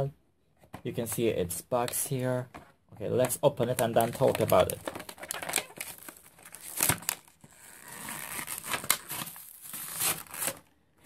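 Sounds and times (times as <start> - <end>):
cardboard and plastic crinkling: 2.5 - 10.7.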